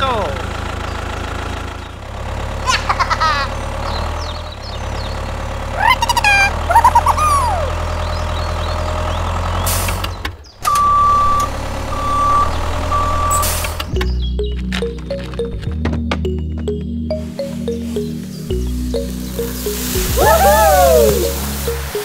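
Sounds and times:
tractor engine running: 0.0 - 22.0
reversing beeper: 10.6 - 13.8.

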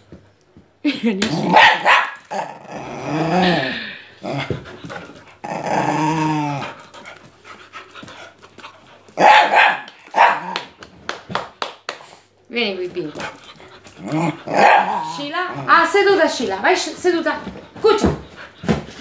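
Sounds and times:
dogs growling: 1.2 - 9.3, 12.9 - 16.7
dogs barking: 1.5 - 2.2, 9.2 - 10.7, 14.4 - 15.3.

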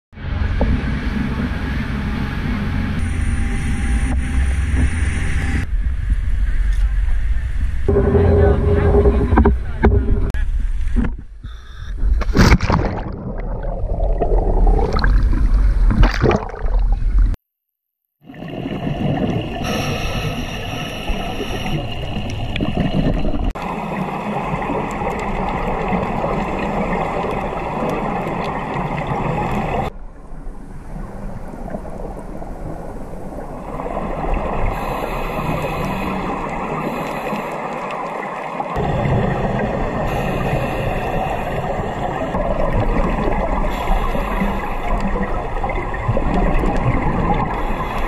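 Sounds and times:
muffled underwater hiss and rumble: 0.4 - 12.3, 18.4 - 48.0
water splashing: 12.0 - 17.4, 18.2 - 48.0.

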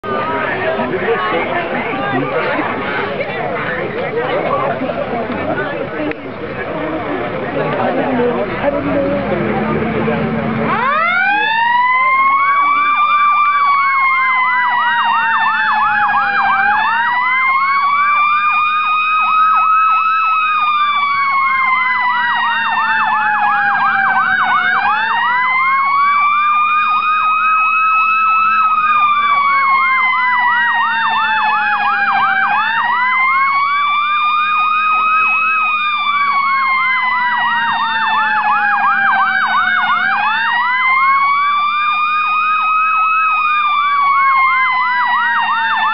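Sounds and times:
siren slow wail: 10.5 - 45.9
fast warbling siren: 10.7 - 45.9.

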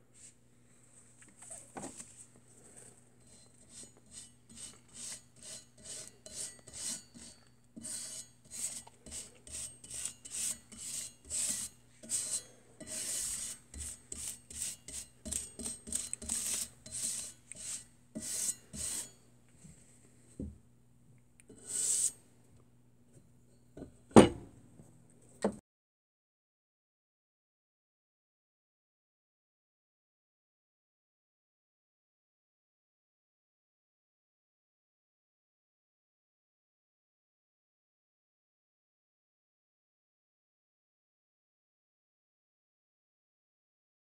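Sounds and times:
scraper scraping paint off metal: 3.3 - 19.1, 21.5 - 22.2.

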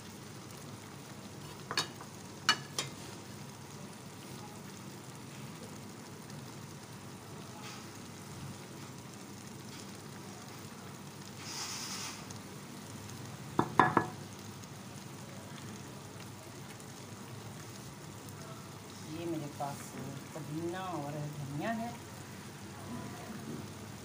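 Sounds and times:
pot bubbling and sizzling: 0.0 - 24.0
brief hiss: 11.4 - 12.4.

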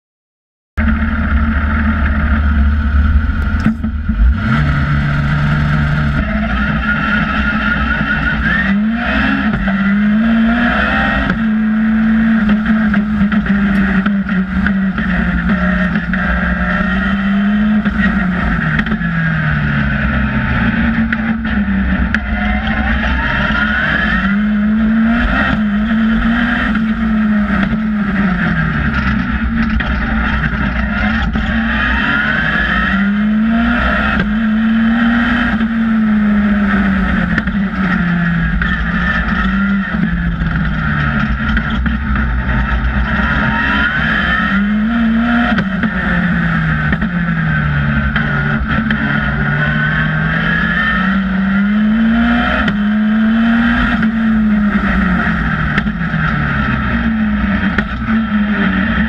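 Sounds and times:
sports car engine revving: 0.8 - 59.0
wind and road rumble: 0.8 - 59.0.

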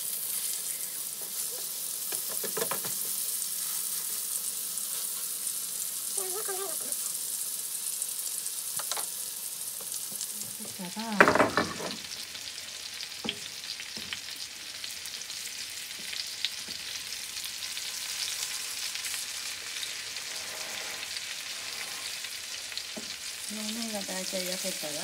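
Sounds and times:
patties sizzling in oil: 0.0 - 25.0
spatula scraping and tapping pan: 1.2 - 3.2.

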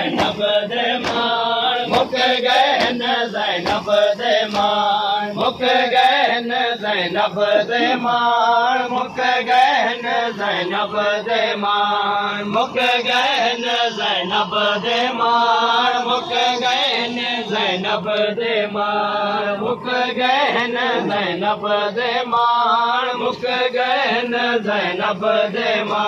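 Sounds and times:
man chanting a lament: 0.0 - 26.0.

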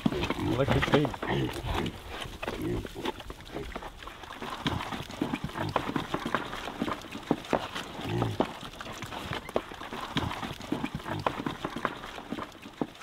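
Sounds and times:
piglets grunting: 0.0 - 7.0, 7.8 - 12.0
piglets crunching feed: 0.0 - 13.0.

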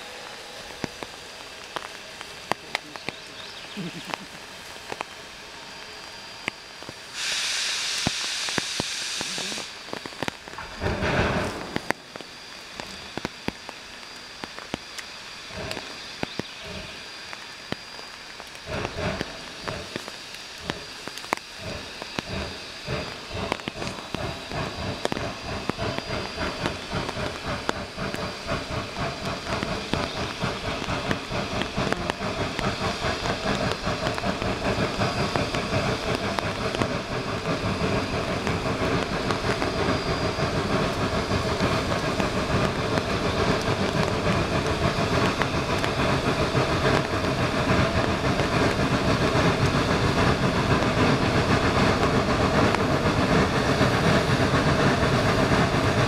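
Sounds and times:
steam hiss: 0.0 - 56.0
steam locomotive chuffing: 0.0 - 56.0.

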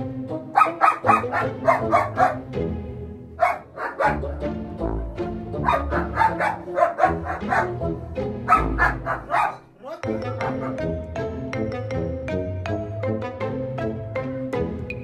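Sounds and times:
background music: 0.0 - 15.0
dog barking sharply: 0.6 - 2.4, 3.4 - 4.2, 5.6 - 7.8, 8.5 - 9.7.

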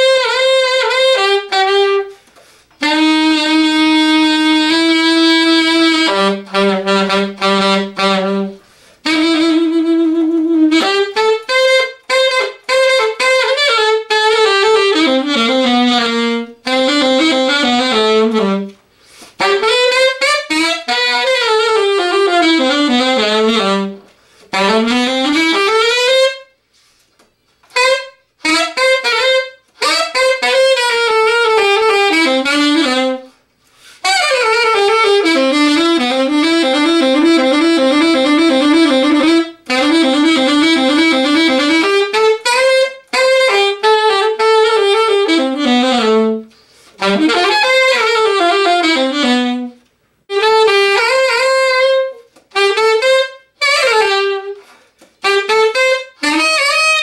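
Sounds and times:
solo alto saxophone jazz: 0.0 - 57.0
player breathing: 18.9 - 19.4, 46.5 - 47.0.

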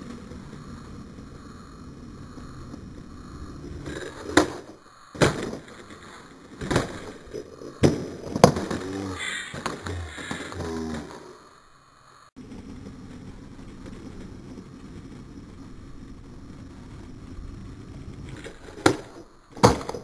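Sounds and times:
skateboard wheels rolling on concrete: 0.0 - 11.6, 12.2 - 20.0
skateboard clacking on concrete: 18.2 - 20.0.

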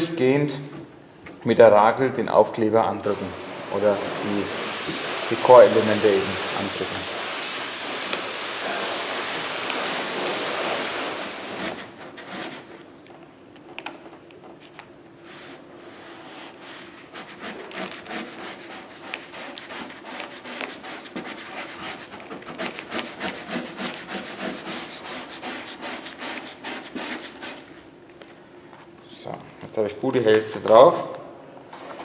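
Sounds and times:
plastic squeegee scraping paper: 3.0 - 12.9, 15.2 - 27.7.

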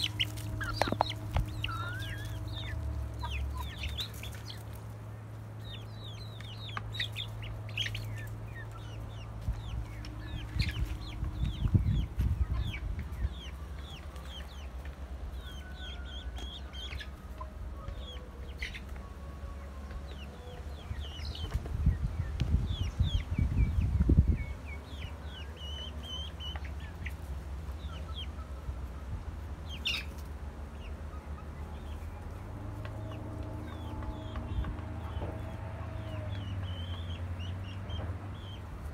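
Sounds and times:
low rumbling noise: 0.0 - 26.4
chicks peeping: 0.0 - 38.9
hens clucking: 0.0 - 38.9.

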